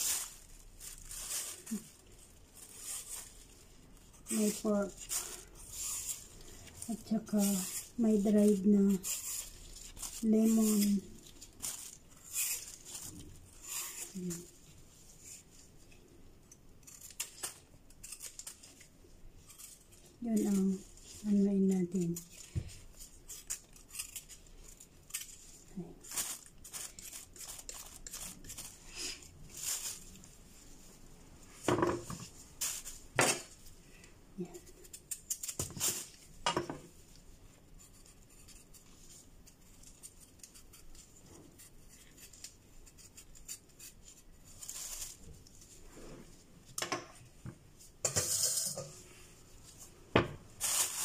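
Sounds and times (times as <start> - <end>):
plastic bag rustling: 0.0 - 15.6, 24.2 - 33.8, 44.2 - 46.7, 48.8 - 51.0
knife scraping radish: 0.0 - 30.8, 32.0 - 46.4, 47.8 - 49.9, 50.6 - 51.0.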